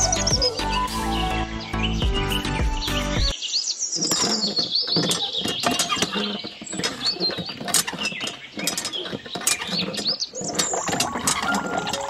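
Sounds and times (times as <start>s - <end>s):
hand pump lever clicking and rattling: 4.0s - 12.0s.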